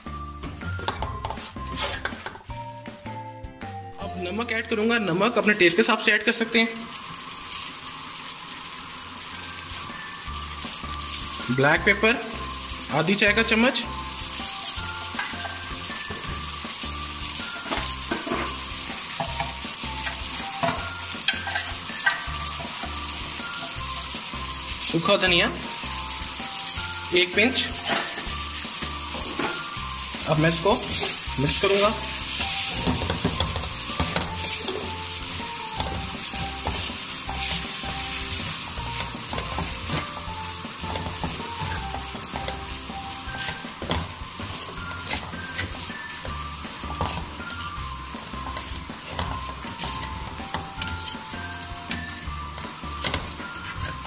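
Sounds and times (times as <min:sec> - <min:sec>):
noodles sizzling in a wok: 0:00.0 - 0:03.1, 0:04.4 - 0:54.0
spatula scraping metal pan: 0:00.8 - 0:02.4, 0:17.4 - 0:24.0, 0:30.6 - 0:47.8, 0:48.4 - 0:54.0.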